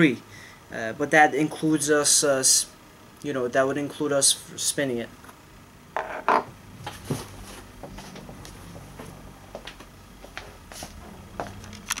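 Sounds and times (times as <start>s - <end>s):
wooden dowel knocking on table: 6.0s - 6.5s.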